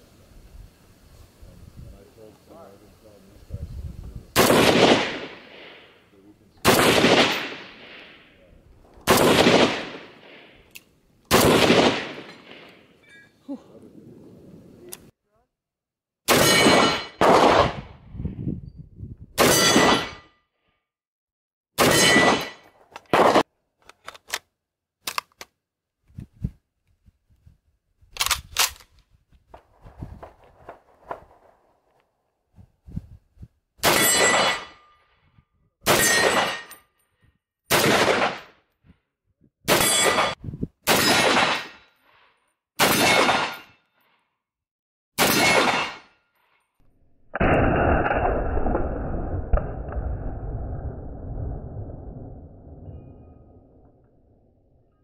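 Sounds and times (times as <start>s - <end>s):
rifle shots: 4.4s - 6.0s, 6.6s - 8.4s, 9.0s - 10.7s, 11.3s - 12.9s, 16.3s - 17.9s, 19.4s - 20.2s, 21.8s - 23.5s, 30.2s - 31.8s, 33.8s - 34.7s, 35.8s - 36.7s, 37.7s - 38.6s, 39.7s - 41.8s, 42.8s - 43.8s, 45.2s - 46.1s.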